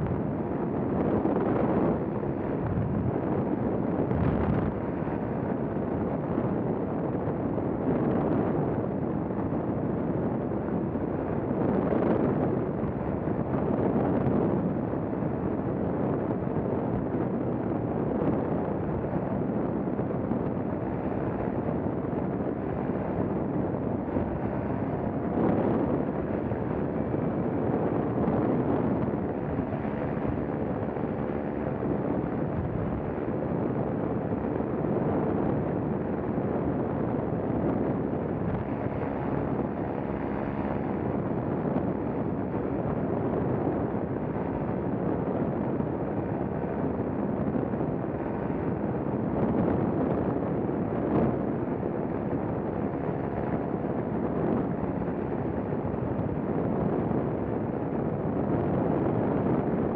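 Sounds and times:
wind noise on microphone: 0.0s - 59.9s.

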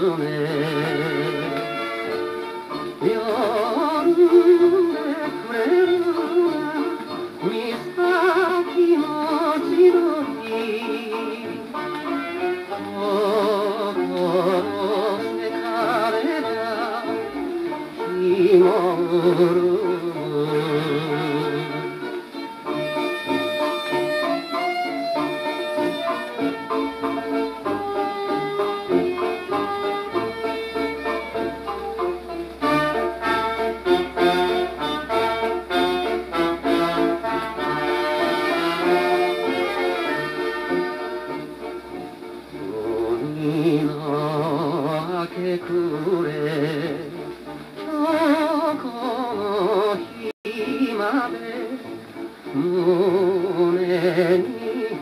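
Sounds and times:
old pop song on record: 0.0s - 55.0s.

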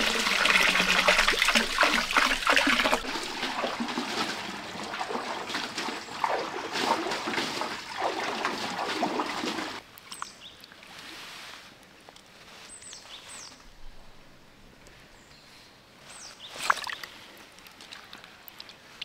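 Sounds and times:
water rushing and splashing: 0.0s - 9.8s
outdoor ambience: 0.0s - 19.0s.

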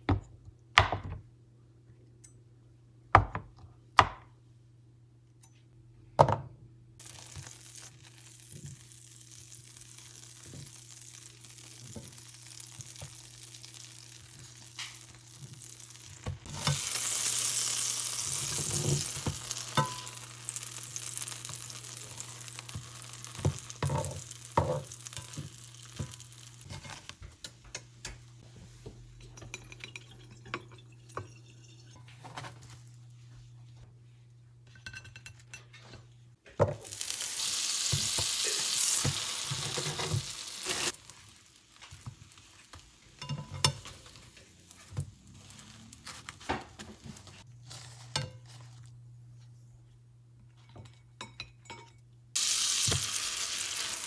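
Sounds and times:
bread sizzling in butter: 7.0s - 27.3s, 36.8s - 47.9s, 52.4s - 54.0s
spatula tapping and scraping pan: 18.5s - 20.2s, 41.8s - 45.1s.

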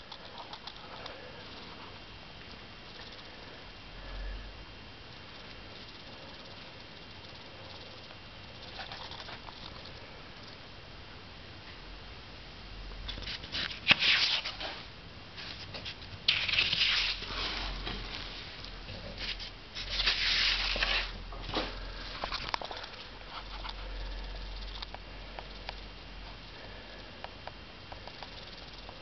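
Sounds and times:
rustling: 13.1s - 24.9s
faint low rumble: 21.2s - 29.0s.

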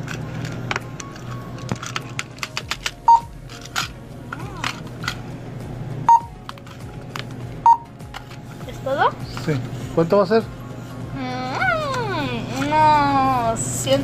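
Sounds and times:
packets rustling and clicking: 0.0s - 5.2s, 6.4s - 8.5s
barcode scanner beeping: 3.0s - 3.4s, 6.1s - 6.4s, 7.6s - 8.0s.

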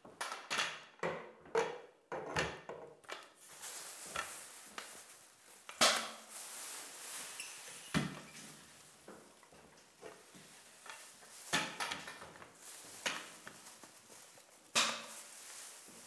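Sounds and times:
plastic sheet rustling: 3.2s - 16.0s.

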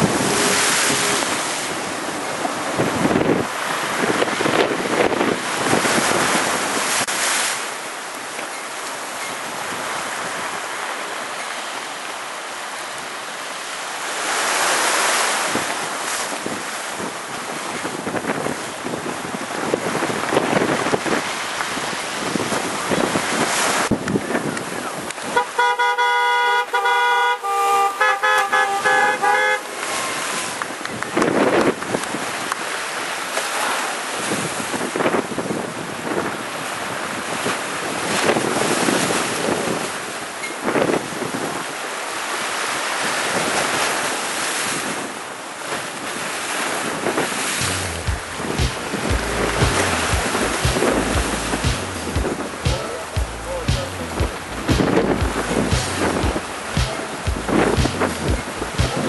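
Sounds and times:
wind buffeting microphone: 0.0s - 7.4s, 15.4s - 25.5s, 28.8s - 33.2s, 34.1s - 41.8s, 43.0s - 59.0s
breaking surf: 0.0s - 25.7s, 26.6s - 59.0s
horn honking: 25.3s - 30.3s, 47.6s - 59.0s.

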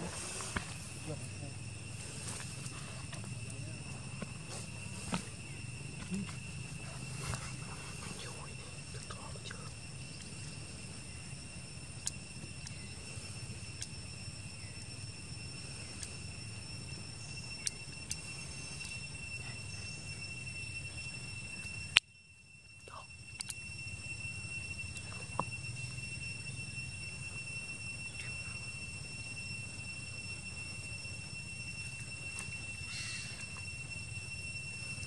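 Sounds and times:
high-pitched insect drone: 0.0s - 35.0s
low background hum: 0.0s - 35.0s
faint clicks: 17.6s - 19.0s, 23.3s - 23.6s.

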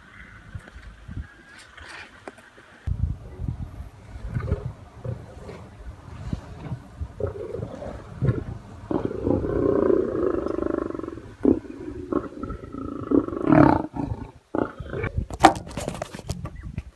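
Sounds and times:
lions growling and snarling: 4.1s - 16.4s.

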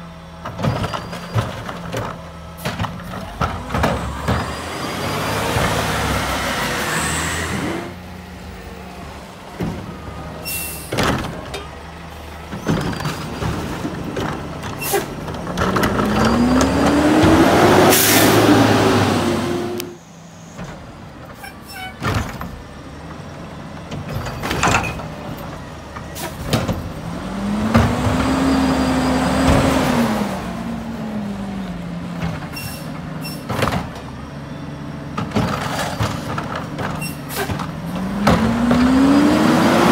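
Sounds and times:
garbage truck engine revving: 0.0s - 20.0s, 22.0s - 39.9s
air brake hisses: 10.4s - 10.9s.

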